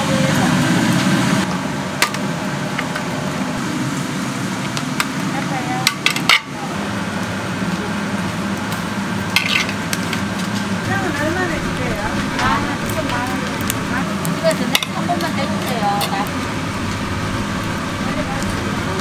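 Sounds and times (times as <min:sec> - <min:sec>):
food sizzling: 0:06.8 - 0:19.0.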